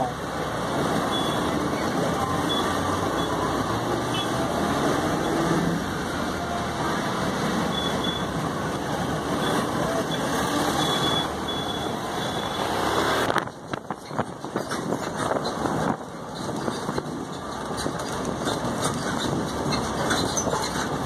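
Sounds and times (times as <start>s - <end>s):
road train engine and road rumble: 0.0s - 21.0s.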